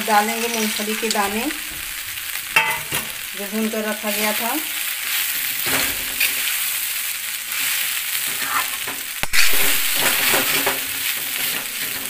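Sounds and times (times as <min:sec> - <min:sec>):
food sizzling in a pan: 0:00.0 - 0:12.0
metal spatula scraping a pan: 0:05.0 - 0:06.8, 0:07.5 - 0:12.0.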